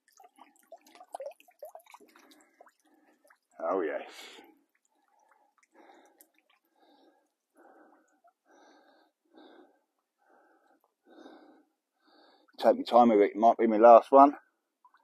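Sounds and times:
man breathing quickly: 4.2 - 12.6.

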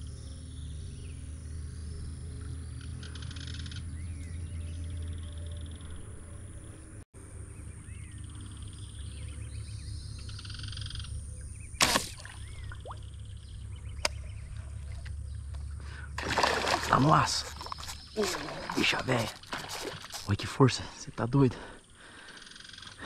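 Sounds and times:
sharp crack of slingshot rifle: 11.8 - 12.2.

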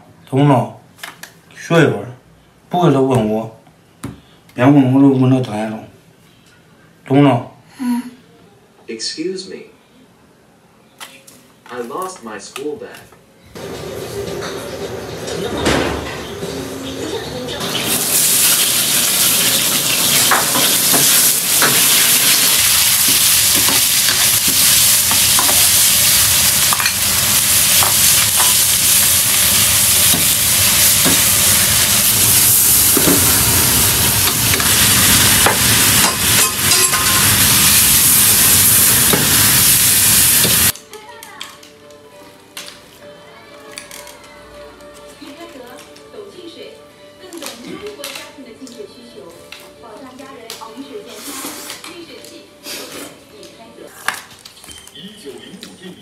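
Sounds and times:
food sizzling in a wok: 13.6 - 15.3, 16.2 - 40.7.

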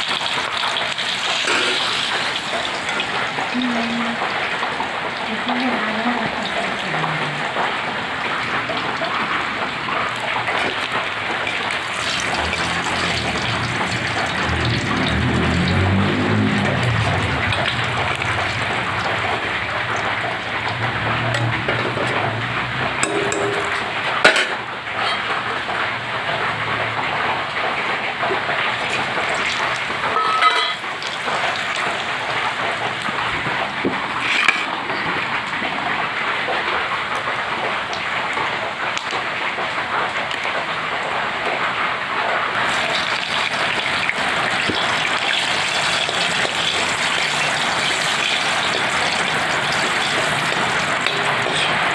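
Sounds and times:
hot oil sizzling in a pan: 0.0 - 35.2, 36.5 - 51.9
heavy rain falling: 0.0 - 51.9
ladle clinking against pan: 30.2 - 30.8.

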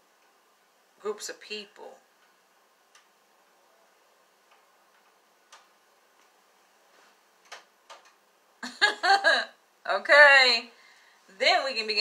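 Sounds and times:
faint clicks: 2.2 - 3.2.

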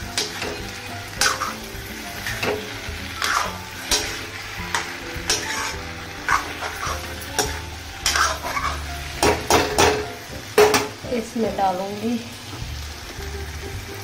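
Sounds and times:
spatula scraping a pan: 0.0 - 10.0
soft frying sizzle: 0.0 - 14.0.

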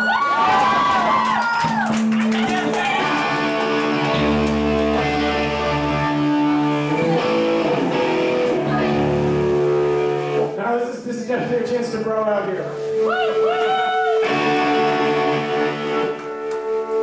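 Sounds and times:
crowd whooping: 0.0 - 5.6, 13.0 - 16.8
electric guitar held chords: 2.4 - 10.6, 12.8 - 17.0.

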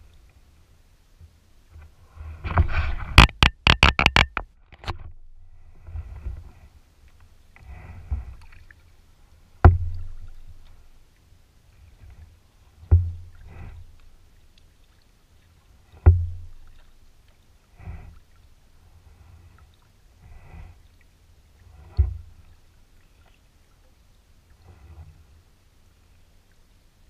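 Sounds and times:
paddle splashing in water: 2.0 - 26.8
paddle knocking hollow hull: 2.5 - 5.3, 9.6 - 10.9, 12.8 - 14.2, 15.9 - 17.0, 21.8 - 22.6.

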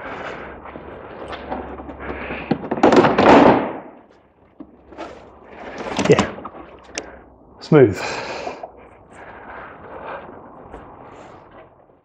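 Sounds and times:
plastic scraping and knocking: 1.2 - 3.6, 4.5 - 7.0.

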